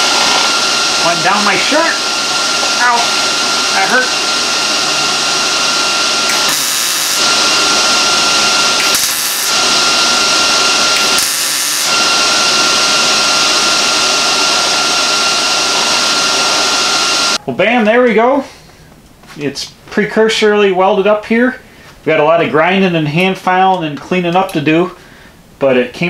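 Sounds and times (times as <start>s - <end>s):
welding hissing crackle: 5.4s - 7.6s, 8.7s - 12.0s.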